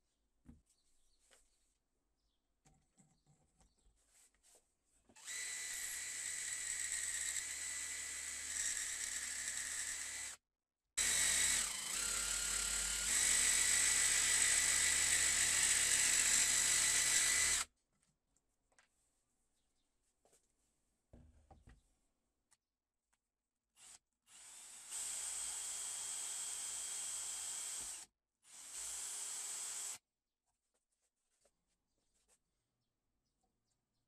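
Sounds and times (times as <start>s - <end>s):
electric jigsaw cutting wood: 5.2s - 10.4s, 11.0s - 17.7s, 23.8s - 30.0s.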